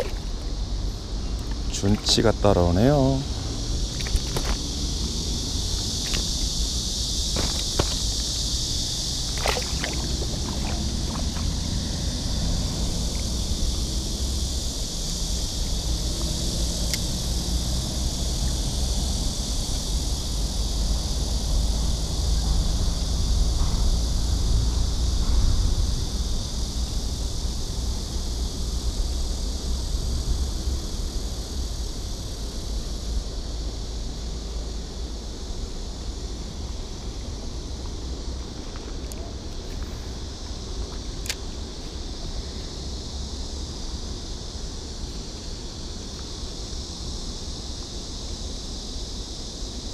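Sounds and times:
road traffic rumble: 0.0 - 24.0
high-pitched hiss: 0.0 - 49.9
wind: 0.0 - 49.9.

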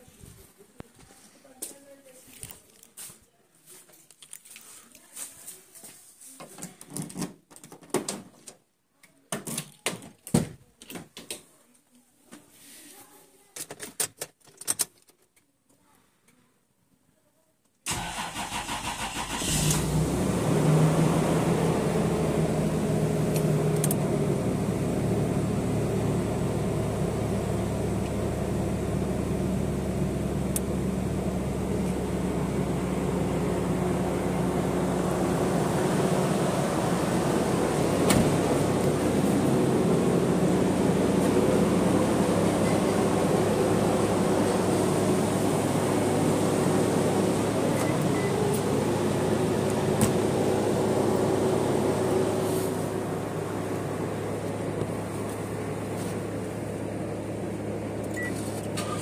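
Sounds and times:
car engine starting and idling: 17.9 - 59.0.

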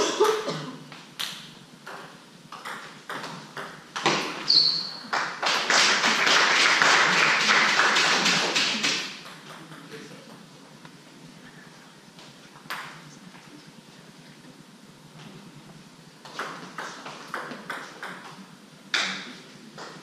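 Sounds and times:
shoe squeaking on floor: 4.4 - 5.1
spectators clapping: 5.0 - 9.2.

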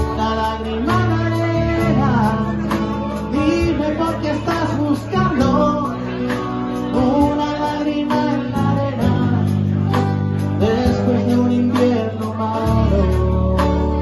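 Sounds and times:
man singing: 0.0 - 14.0
strummed acoustic guitars: 0.0 - 14.0.

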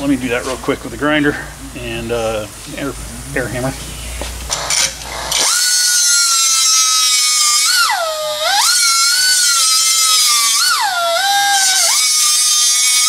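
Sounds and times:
handheld grinder grinding steel: 4.5 - 13.0.

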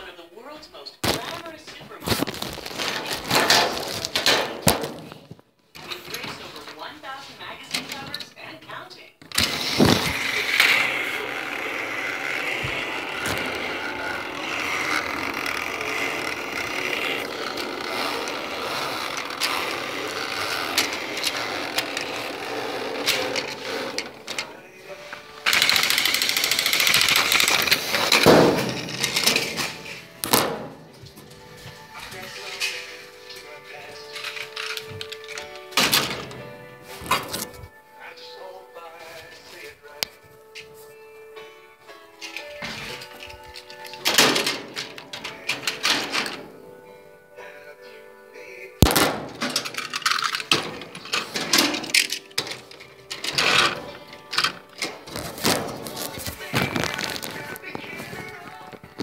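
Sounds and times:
hard objects clattering and knocking: 1.0 - 6.8, 9.2 - 33.0, 42.2 - 46.6, 48.8 - 59.0
rustling: 1.0 - 8.6, 9.3 - 37.8, 48.8 - 59.0
toy train motor whirring: 9.3 - 24.6, 25.3 - 29.6, 49.6 - 55.1.

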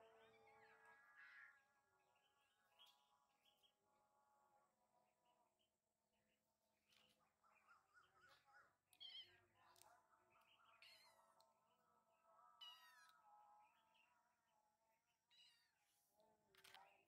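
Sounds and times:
kittens meowing faintly: 12.6 - 13.2, 15.3 - 15.8.

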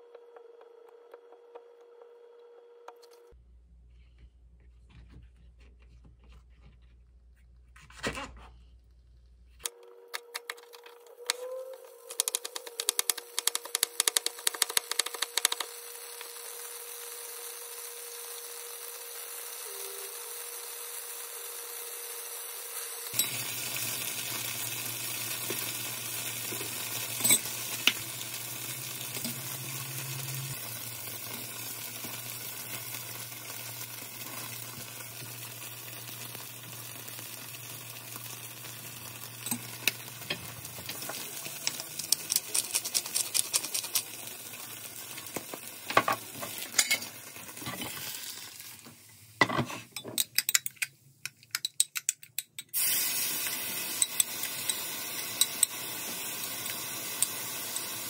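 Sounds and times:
tofu sizzling in oil: 13.2 - 49.4, 52.8 - 58.0.

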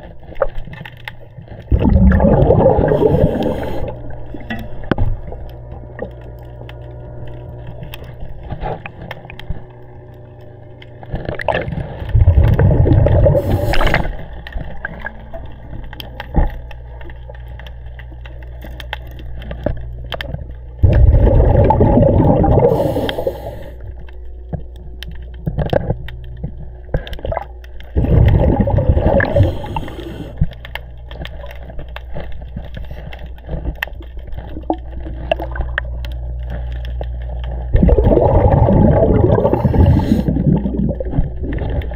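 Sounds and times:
steady low hum: 0.0 - 41.9
diver's exhaled bubbles bursting: 1.7 - 7.6, 11.2 - 15.4, 20.8 - 23.6, 27.2 - 30.5, 34.5 - 36.4, 37.6 - 41.9.

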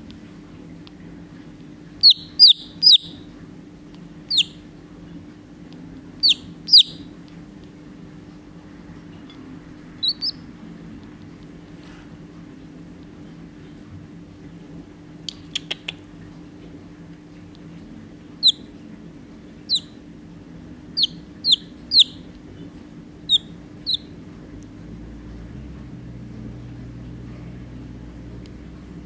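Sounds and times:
low steady hum: 0.0 - 29.0
chick peeping: 2.0 - 3.2, 4.3 - 4.6, 6.2 - 7.1, 9.9 - 10.5, 18.4 - 18.7, 19.6 - 20.0, 20.9 - 22.3, 23.2 - 24.2.

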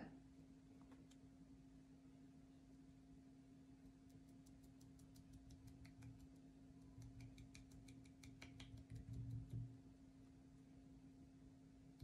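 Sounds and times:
sponge dabbing taps: 4.5 - 9.8.

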